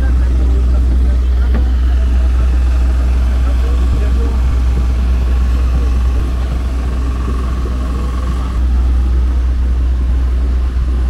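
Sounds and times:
airport apron rumble: 0.0s - 11.0s
faint steady whine: 0.0s - 11.0s.

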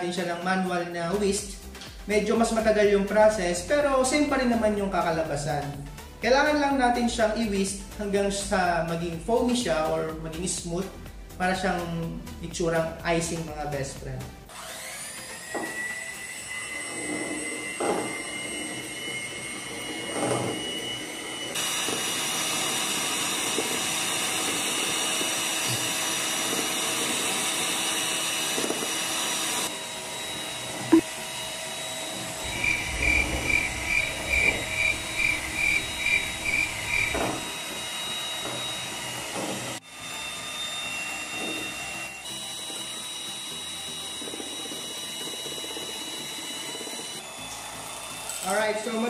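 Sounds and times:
electric hand mixer whining: 14.5s - 49.0s
quick mixer pulses: 32.4s - 37.8s.

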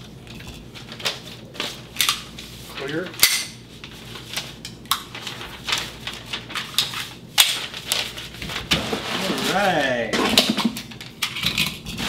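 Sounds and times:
paper rustling: 0.6s - 10.1s.

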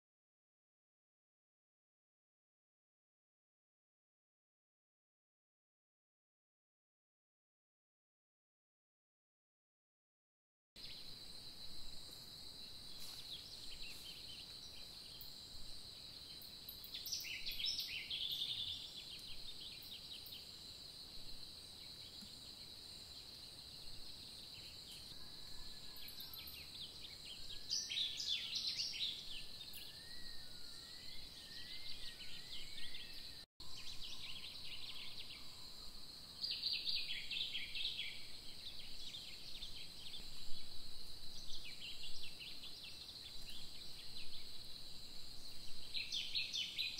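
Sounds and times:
bird chirping: 10.8s - 46.9s
whistled bird notes: 16.8s - 20.4s, 24.5s - 35.7s.

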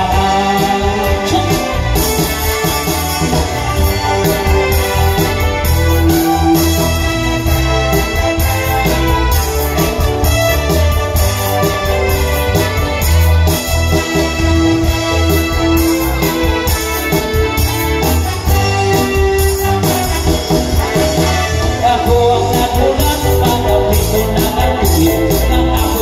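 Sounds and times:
keyboard organ playing: 0.0s - 26.0s
live band music: 0.0s - 26.0s.

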